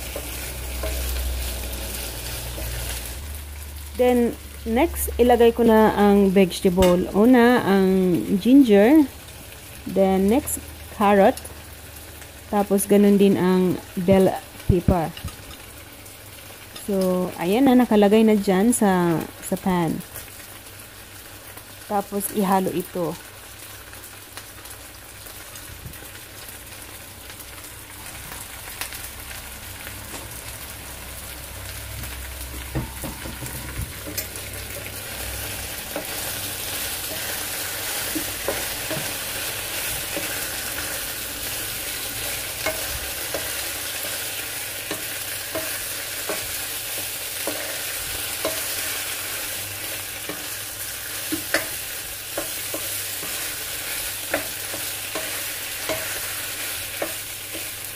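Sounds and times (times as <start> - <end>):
beef and vegetables sizzling: 0.0 - 57.9
spatula scraping and tapping pan: 35.9 - 41.0, 42.3 - 44.2, 44.8 - 46.6, 47.4 - 49.0, 51.2 - 57.7.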